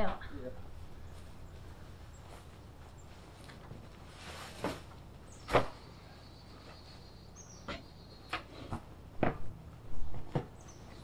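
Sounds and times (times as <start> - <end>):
hay bales thudding: 3.7 - 5.8.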